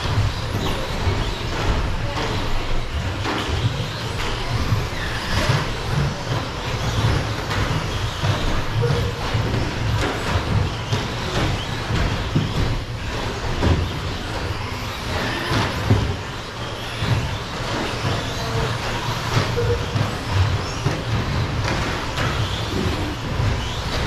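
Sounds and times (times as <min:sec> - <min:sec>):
rc truck motors whining: 0:00.0 - 0:24.0
trucks knocking and clattering: 0:00.0 - 0:24.0.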